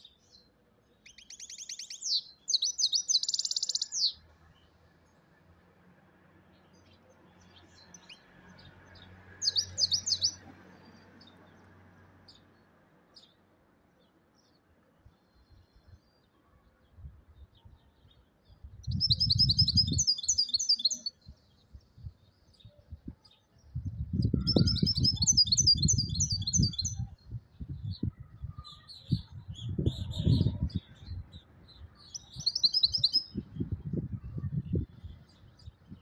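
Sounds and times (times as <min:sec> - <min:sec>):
goldfinch twittering song: 0:00.1 - 0:04.2, 0:09.0 - 0:11.4, 0:17.8 - 0:36.0.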